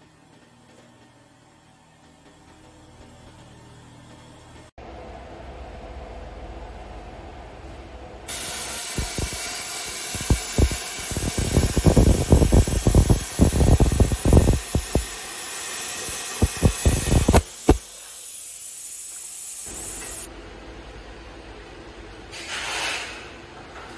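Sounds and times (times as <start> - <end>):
plasma cutter arc hissing and crackling: 8.3 - 20.3.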